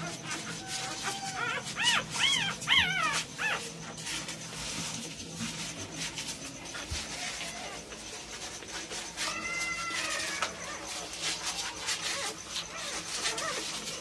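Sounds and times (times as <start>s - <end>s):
puppies squealing: 0.0s - 4.4s, 7.1s - 14.0s.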